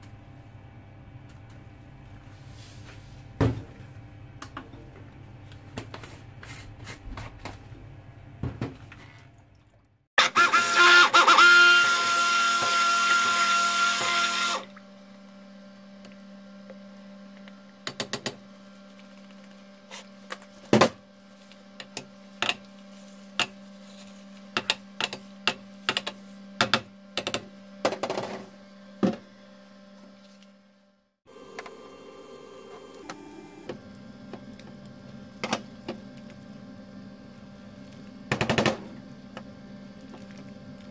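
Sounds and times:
stick blender running: 10.2 - 14.7, 31.3 - 36.0.

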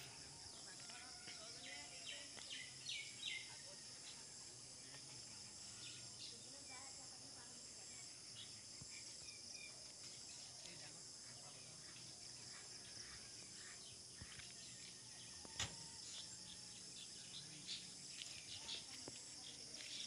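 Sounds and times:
insects droning: 0.0 - 20.0
sharp click: 15.6 - 15.8.

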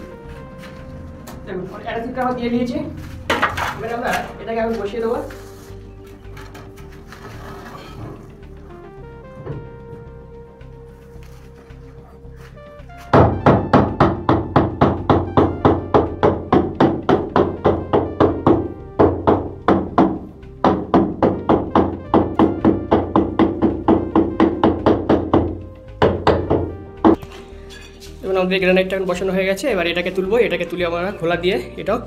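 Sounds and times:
background music: 0.0 - 32.0.

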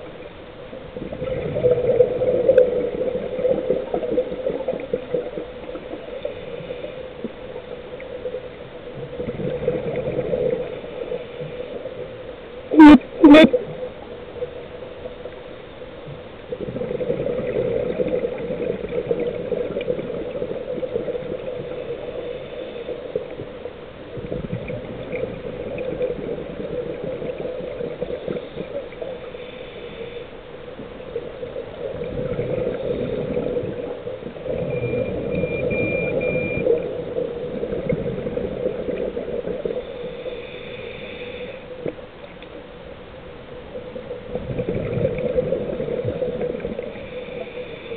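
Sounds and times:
underwater scuba bubbles: 0.0 - 47.9
faint high beeps: 34.5 - 36.7.

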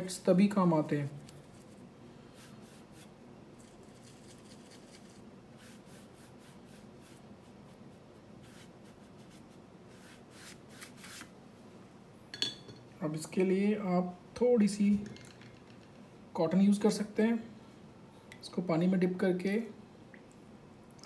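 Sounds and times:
paintbrush strokes on paper: 1.4 - 11.3.

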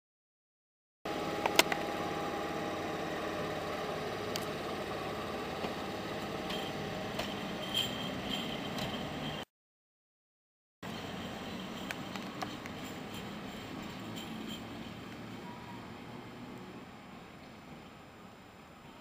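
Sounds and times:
electric locomotive hum: 1.1 - 9.4, 10.8 - 19.0.

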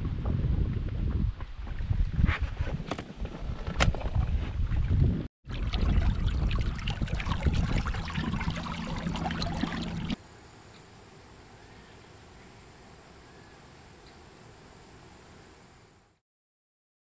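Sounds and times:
wind buffeting microphone: 0.0 - 9.8
water splashing and lapping: 5.4 - 10.2
faint hiss: 10.2 - 16.2.

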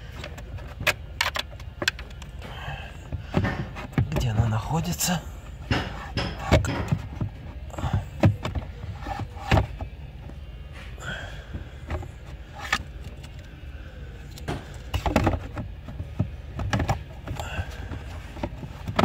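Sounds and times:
low steady rumble: 0.0 - 19.0
plastic clicks and knocks: 5.7 - 7.3.

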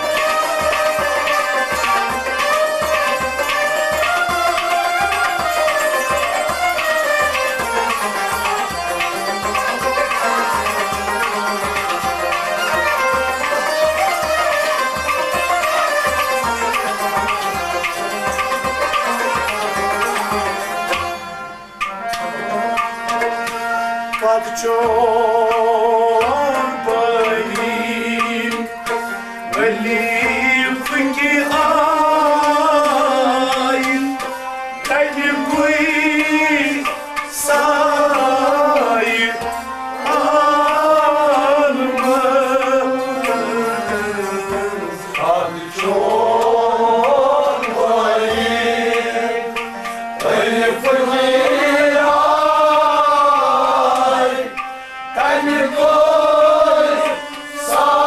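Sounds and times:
person singing folk melody: 24.1 - 58.0.

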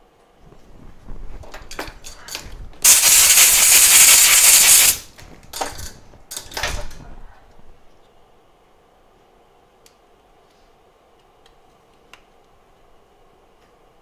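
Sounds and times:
pressurised spray hissing: 2.8 - 5.1.

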